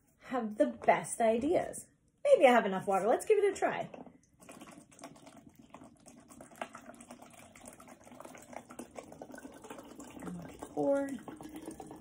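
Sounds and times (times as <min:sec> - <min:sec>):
water trickling into bottle: 0:04.0 - 0:12.0.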